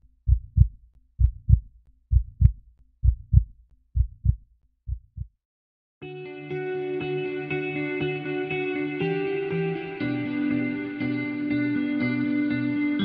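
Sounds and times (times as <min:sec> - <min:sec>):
heartbeat: 0:00.2 - 0:05.4.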